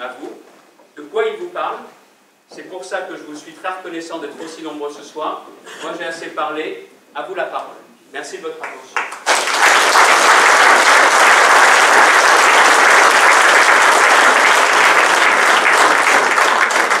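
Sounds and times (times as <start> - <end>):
audience applauding: 8.6 - 17.0.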